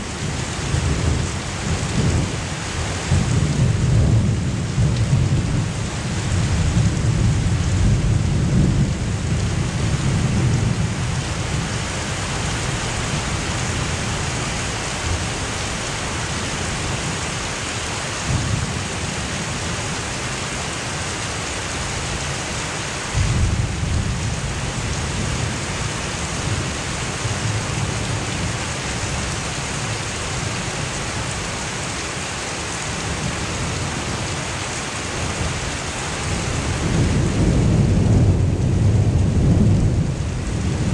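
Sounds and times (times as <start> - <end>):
heavy rain hissing: 0.0 - 40.9
thunder rumbling: 3.0 - 15.6, 23.1 - 29.3, 36.2 - 40.9.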